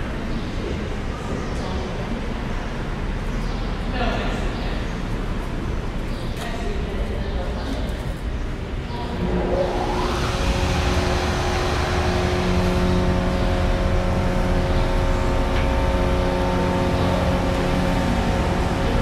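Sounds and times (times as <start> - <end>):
low rumble: 8.9 - 19.0
hydraulic pump motor whining: 9.2 - 19.0.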